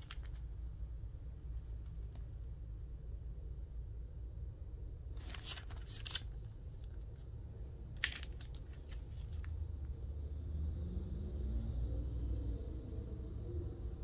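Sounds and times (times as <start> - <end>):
plastic sleeve crinkling: 0.0 - 0.5, 5.2 - 7.2, 8.0 - 9.5
low steady hum: 0.0 - 14.0.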